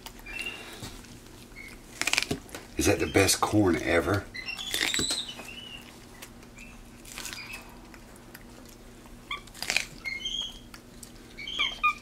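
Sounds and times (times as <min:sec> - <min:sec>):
crunching bites: 0:00.0 - 0:02.8, 0:04.6 - 0:11.2
monkey high-pitched chirps: 0:04.3 - 0:05.9, 0:09.3 - 0:10.7, 0:11.4 - 0:12.0.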